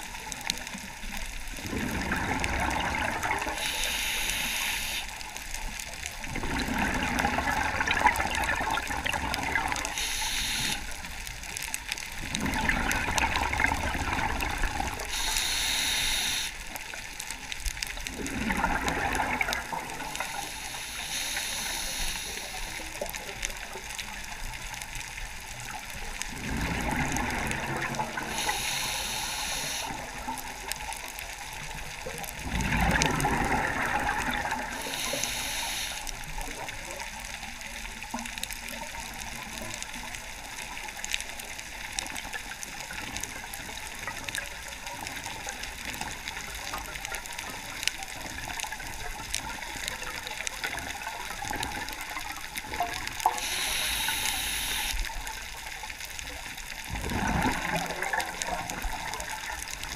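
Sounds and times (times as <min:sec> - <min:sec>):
faint crackle of clicks: 0:00.0 - 0:59.9
rush of exhaled bubbles: 0:01.4 - 0:05.0, 0:06.1 - 0:10.9, 0:12.1 - 0:16.4, 0:18.0 - 0:23.1, 0:26.2 - 0:37.6, 0:56.8 - 0:59.9
regulator inhale hiss: 0:03.5 - 0:05.2, 0:09.9 - 0:11.0, 0:15.1 - 0:16.6, 0:20.2 - 0:23.0, 0:28.2 - 0:30.2, 0:34.7 - 0:36.3, 0:53.3 - 0:55.1.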